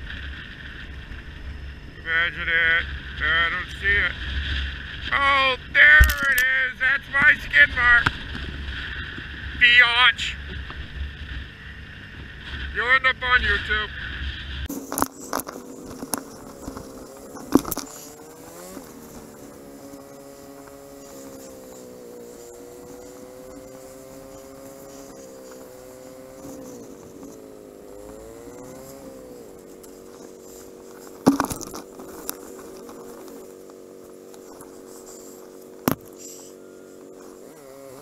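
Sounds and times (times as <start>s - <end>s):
motorcycle engine running: 0.0s - 38.0s
sharp knocks: 31.2s - 31.8s, 35.8s - 36.1s.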